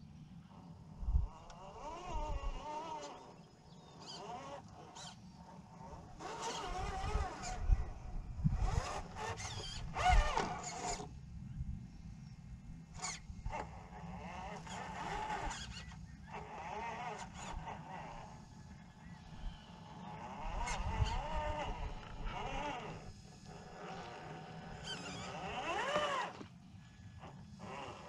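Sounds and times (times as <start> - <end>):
electric motor and gears whining: 0.5 - 11.2, 12.9 - 28.0
wind rumbling on microphone: 1.0 - 2.7, 6.2 - 13.8, 20.3 - 23.8.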